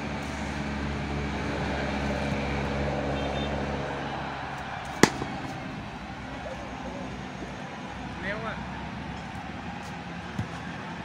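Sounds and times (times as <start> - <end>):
cricket bat striking ball: 4.6 - 6.1.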